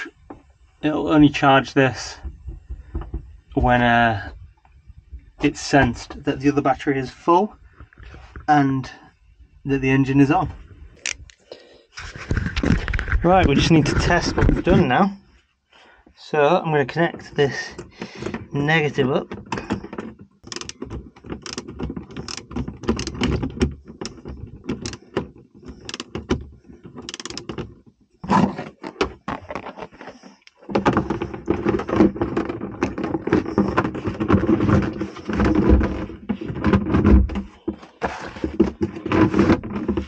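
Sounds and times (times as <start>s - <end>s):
plastic lid scraping and knocking: 1.9s - 3.8s, 12.0s - 15.1s, 17.0s - 40.0s.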